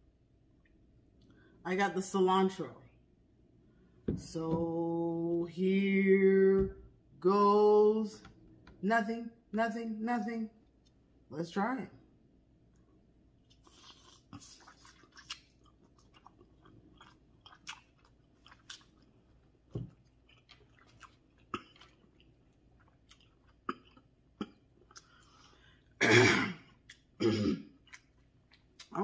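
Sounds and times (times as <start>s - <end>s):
person chewing: 12.7s - 26.0s, 26.6s - 29.0s
person clearing throat: 26.0s - 27.8s.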